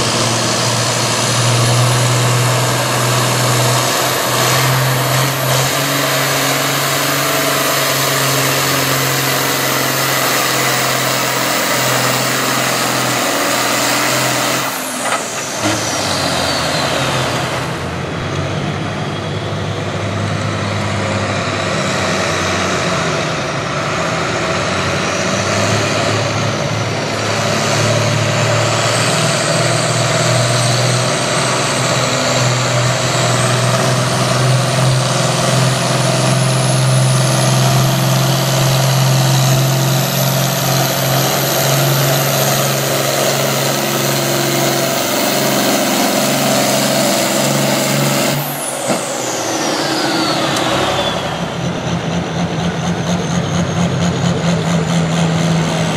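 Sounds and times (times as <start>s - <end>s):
tractor diesel engine under load: 0.0s - 55.9s.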